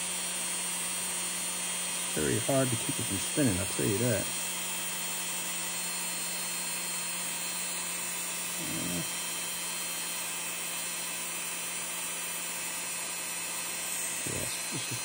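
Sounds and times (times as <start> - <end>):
rotary tool whining at high speed: 0.0 - 15.0.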